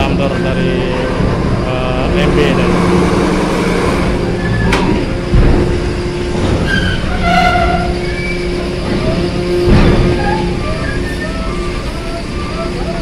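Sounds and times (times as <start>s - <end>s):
bus engine running: 0.0s - 13.0s
heavy thump: 4.7s - 6.7s, 9.6s - 10.3s.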